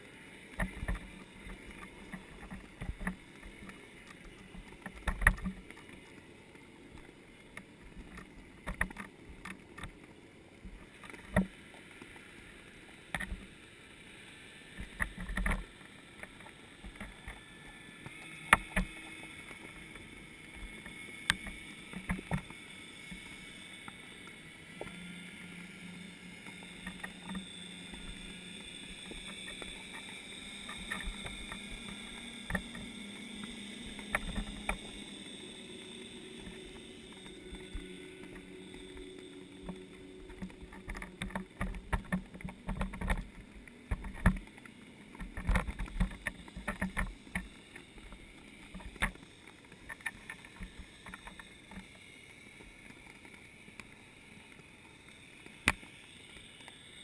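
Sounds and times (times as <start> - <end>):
underwater hum with held tones: 0.0 - 57.0
sharp clicks: 26.4 - 52.0.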